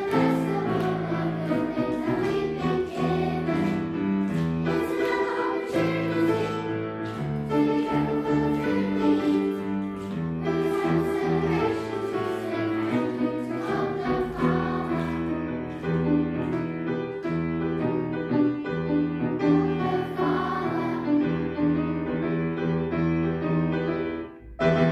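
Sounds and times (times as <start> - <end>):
children singing together: 0.0 - 16.3, 19.0 - 21.8
piano accompaniment: 0.0 - 24.9.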